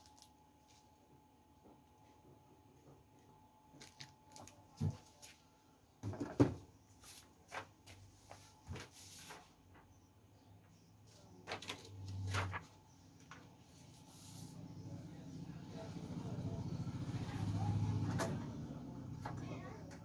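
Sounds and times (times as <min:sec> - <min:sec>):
paper rustling: 0:07.0 - 0:10.0, 0:11.1 - 0:14.6.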